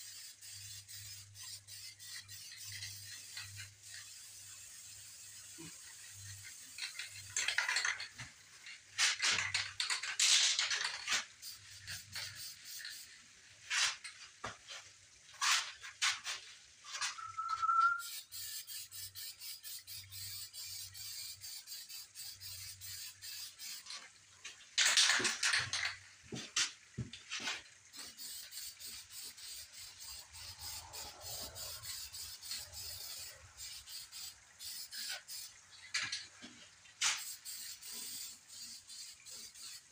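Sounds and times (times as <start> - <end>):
spray can hissing: 0.0 - 7.9, 11.0 - 13.1, 15.4 - 23.9, 27.9 - 36.1, 37.0 - 39.9.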